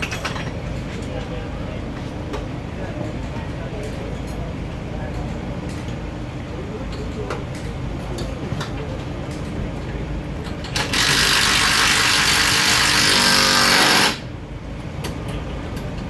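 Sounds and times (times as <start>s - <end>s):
power tool burst: 10.8s - 14.3s.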